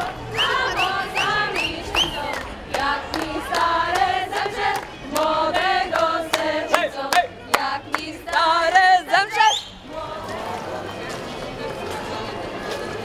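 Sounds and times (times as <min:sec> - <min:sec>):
group singing in unison: 0:00.0 - 0:11.2.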